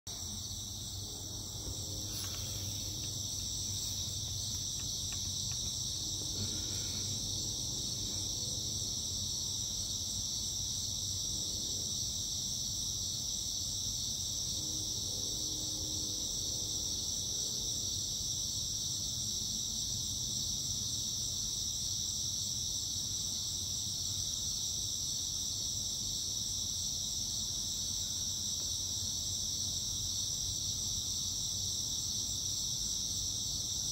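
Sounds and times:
faint low hum: 0.1s - 12.8s
crickets chirping chorus: 0.1s - 33.9s.

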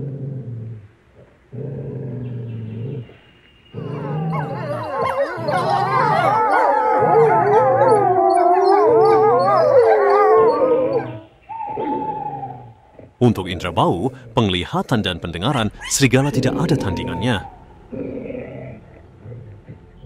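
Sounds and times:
wolf growling: 0.0s - 20.0s
wolves howling in chorus: 3.7s - 14.2s, 15.5s - 20.0s.

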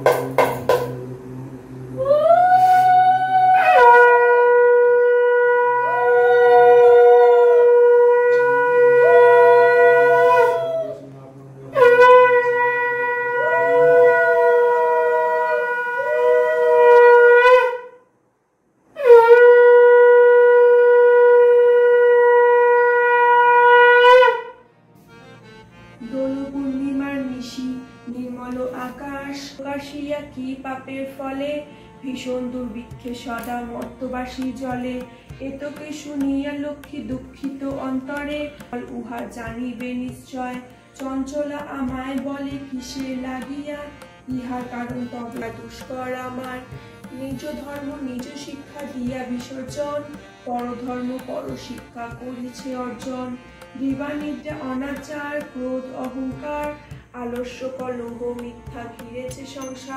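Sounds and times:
conch shell blasts: 3.5s - 10.6s, 11.8s - 18.0s, 19.0s - 24.6s.

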